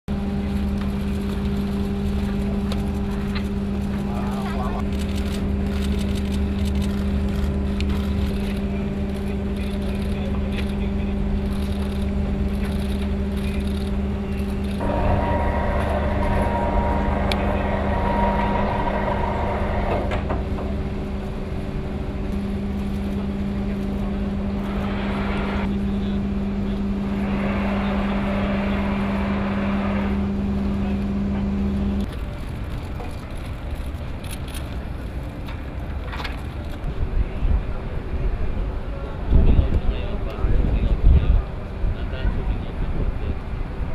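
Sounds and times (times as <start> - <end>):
deep rumble: 0.1 - 43.9
low machine hum: 0.1 - 43.9
hissing noise: 14.8 - 20.7.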